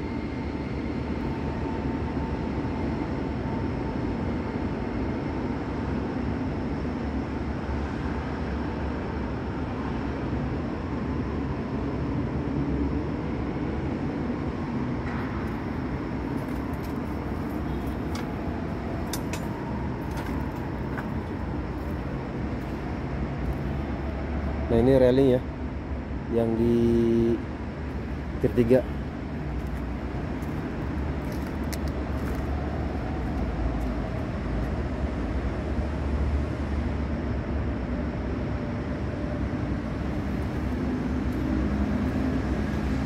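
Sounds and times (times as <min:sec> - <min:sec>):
construction machinery rumble: 0:14.3 - 0:43.0.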